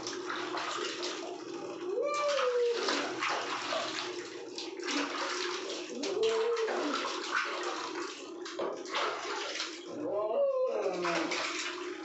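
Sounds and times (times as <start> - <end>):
water splashing in a plastic basin: 0.0 - 12.0
cat meowing: 1.8 - 2.9.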